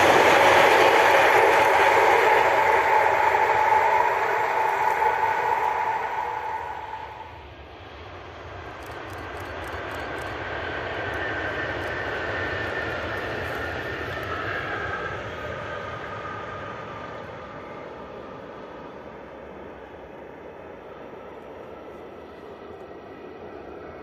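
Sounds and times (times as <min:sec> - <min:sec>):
electric train passing: 0:00.0 - 0:24.0
high whine: 0:00.0 - 0:24.0.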